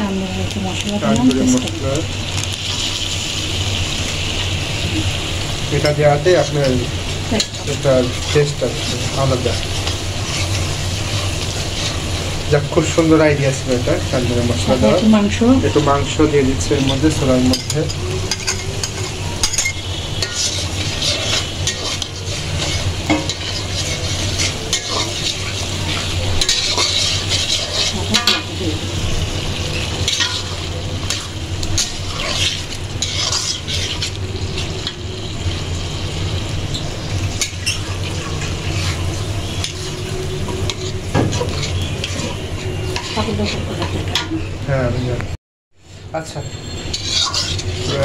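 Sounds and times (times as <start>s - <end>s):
food sizzling in oil: 0.0s - 45.2s, 45.8s - 48.0s
metal spatula scraping a pan: 5.7s - 13.6s, 16.6s - 44.5s, 45.8s - 48.0s.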